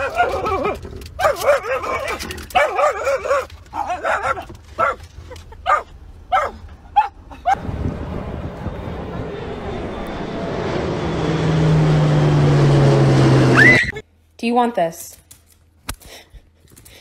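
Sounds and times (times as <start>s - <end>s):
dog whining and howling: 0.0s - 5.0s
dog yelping: 0.0s - 7.6s.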